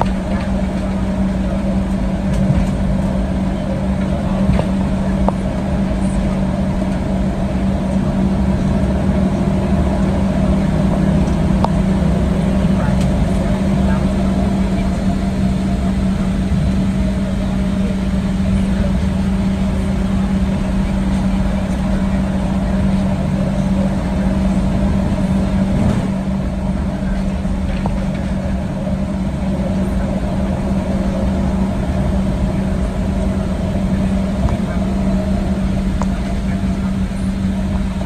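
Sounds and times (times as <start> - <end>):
airplane cabin hum: 0.0 - 38.0.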